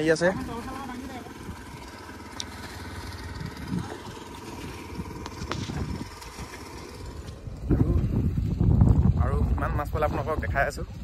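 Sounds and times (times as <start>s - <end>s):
small pump engine running: 0.0s - 11.0s.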